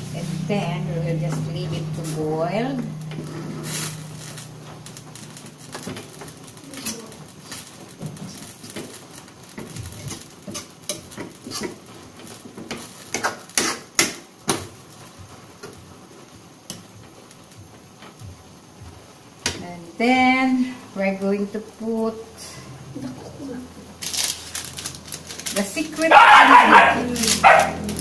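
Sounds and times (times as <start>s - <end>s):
spatula scraping a pan: 1.4s - 4.4s, 9.9s - 11.9s.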